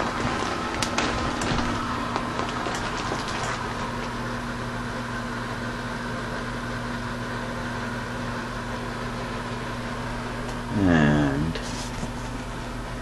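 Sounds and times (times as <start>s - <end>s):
machine electrical hum: 0.0s - 13.0s.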